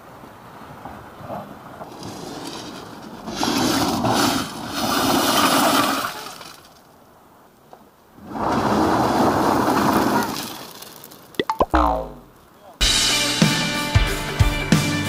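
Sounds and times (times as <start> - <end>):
car wheels spinning in pebbles: 1.9 - 6.8.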